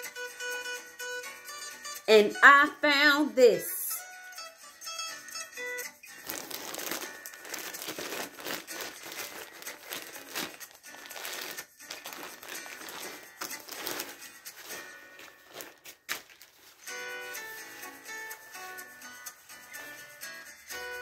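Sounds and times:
faint background music: 0:00.0 - 0:21.0
plastic bag crinkling: 0:06.1 - 0:17.1.

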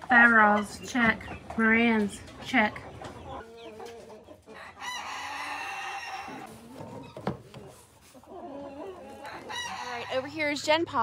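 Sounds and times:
chickens clucking: 0:00.0 - 0:10.8
rooster crowing: 0:04.6 - 0:06.5.

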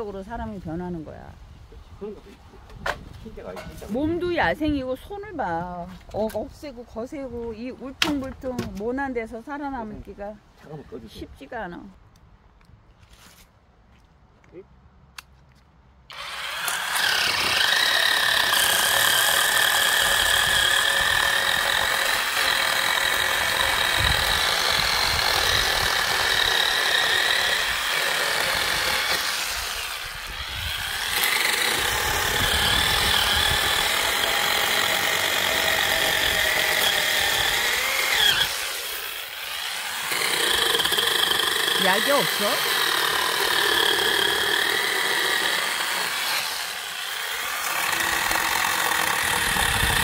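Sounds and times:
electric chainsaw cutting log: 0:16.1 - 0:50.0.

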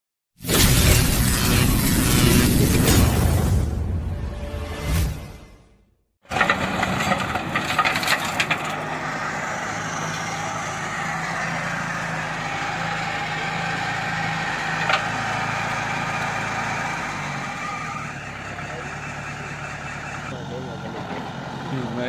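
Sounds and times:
tractor diesel engine under load: 0:06.2 - 0:22.0.

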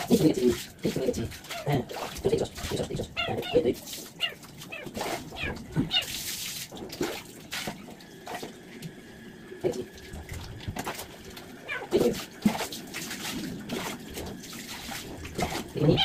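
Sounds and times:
water splashing: 0:00.0 - 0:09.0, 0:09.6 - 0:16.0
cat meowing: 0:04.2 - 0:06.1, 0:11.6 - 0:12.0.

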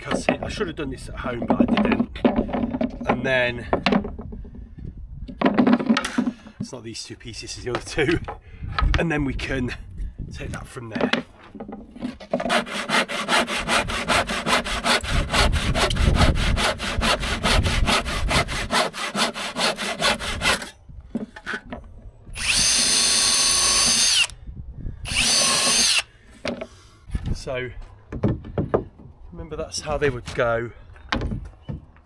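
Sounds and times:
hand saw cutting wood: 0:12.0 - 0:20.8, 0:22.4 - 0:24.3, 0:25.1 - 0:26.1
power tool whining: 0:22.3 - 0:24.4, 0:25.0 - 0:26.1.

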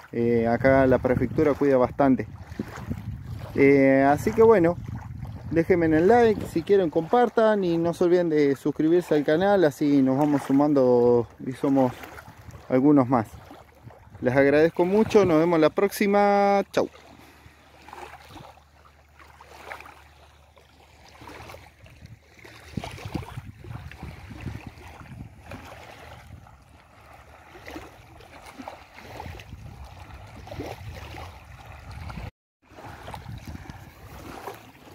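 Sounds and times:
river waves lapping at bank: 0:00.0 - 0:34.9
wind buffeting microphone: 0:00.2 - 0:08.1, 0:10.9 - 0:16.1, 0:21.2 - 0:34.9.

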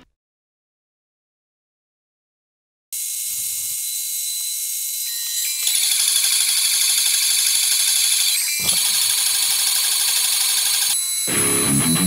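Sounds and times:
router high-pitched whine: 0:03.0 - 0:12.0.

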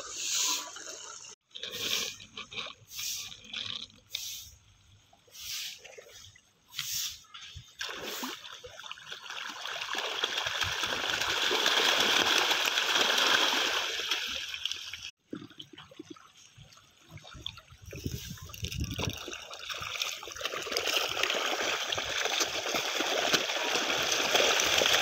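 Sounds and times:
fish thrashing and splashing: 0:07.8 - 0:14.5, 0:18.0 - 0:25.0.

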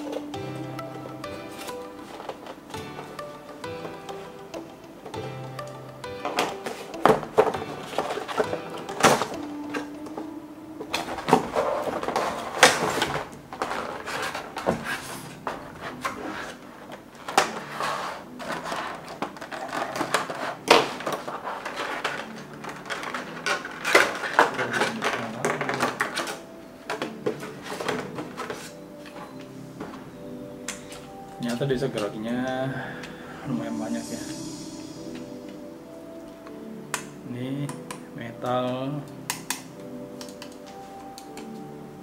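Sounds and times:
plastic packaging crinkling: 0:11.0 - 0:29.4.

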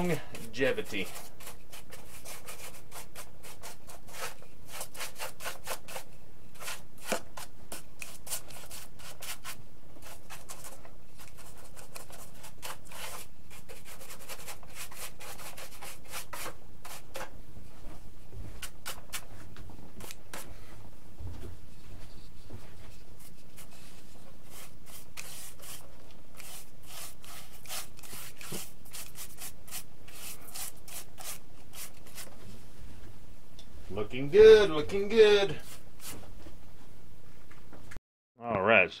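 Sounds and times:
paintbrush strokes on foam: 0:21.6 - 0:32.7.

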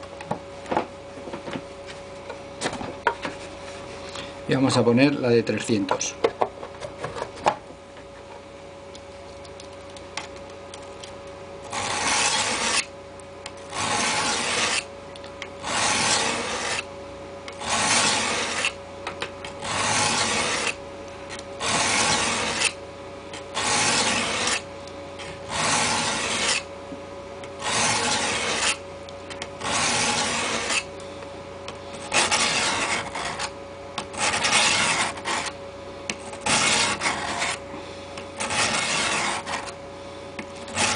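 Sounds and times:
knife rasping on sharpening plate: 0:25.5 - 0:26.6, 0:27.6 - 0:28.8, 0:29.6 - 0:30.8, 0:32.0 - 0:33.5, 0:34.1 - 0:35.5, 0:36.4 - 0:37.6, 0:38.4 - 0:39.7.

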